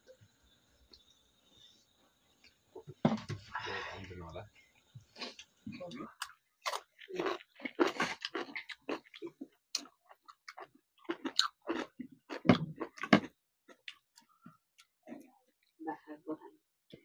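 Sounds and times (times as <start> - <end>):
person chewing food: 6.2 - 15.5.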